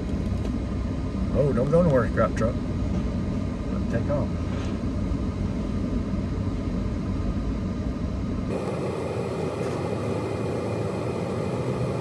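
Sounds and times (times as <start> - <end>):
engine and road rumble in truck cab: 0.0 - 12.0
bright steady noise: 7.6 - 12.0.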